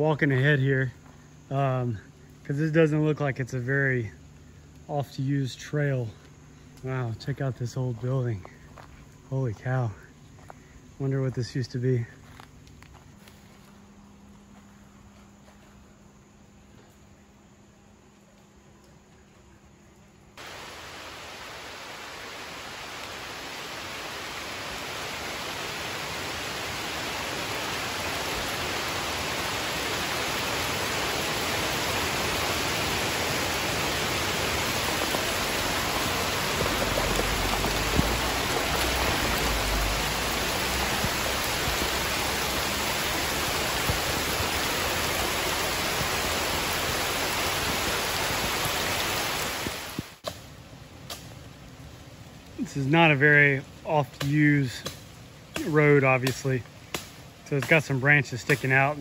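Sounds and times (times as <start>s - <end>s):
heavy rain pouring: 20.4s - 50.2s.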